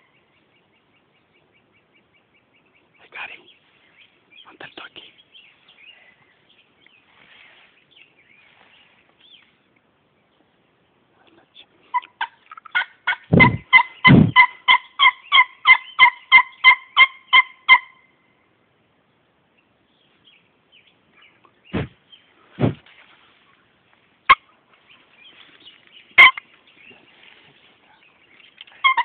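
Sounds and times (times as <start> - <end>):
turkey yelps: 11.9 - 18.0, 26.2 - 26.4, 28.8 - 29.0
low thuds: 13.3 - 14.4, 21.7 - 23.1.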